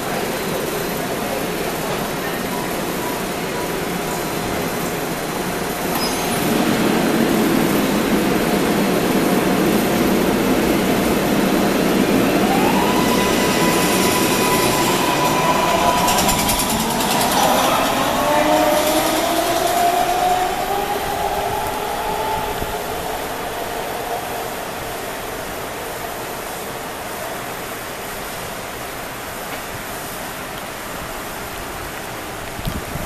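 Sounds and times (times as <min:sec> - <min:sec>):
train rumbling past: 0:00.0 - 0:33.0
electric traction motor whine: 0:12.0 - 0:25.0.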